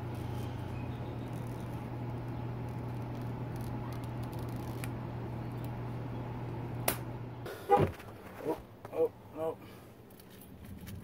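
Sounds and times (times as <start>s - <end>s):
rubber coating peeling: 0.0s - 5.0s
steady low hum: 0.0s - 11.0s.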